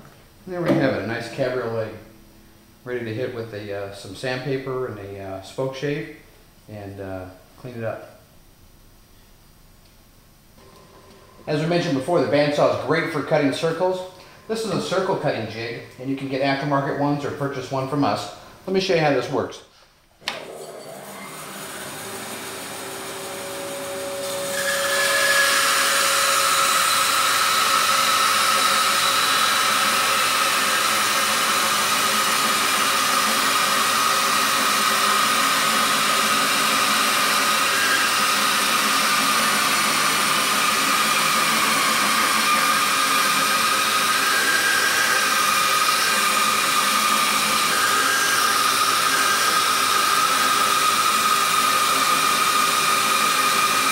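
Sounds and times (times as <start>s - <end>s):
bandsaw motor running: 20.3s - 53.9s
bandsaw blade cutting plywood: 20.9s - 53.9s.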